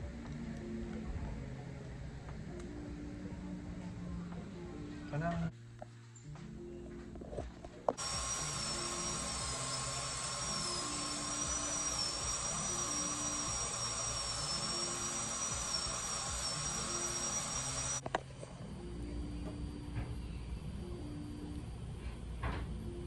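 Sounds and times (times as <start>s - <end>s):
dental drill whining: 8.0s - 18.1s.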